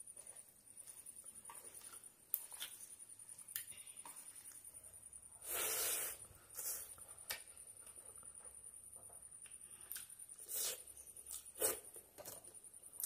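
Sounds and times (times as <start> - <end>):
food squishing in hand: 0.8 - 4.6
hissing mouth sounds: 5.4 - 7.0, 10.4 - 10.9.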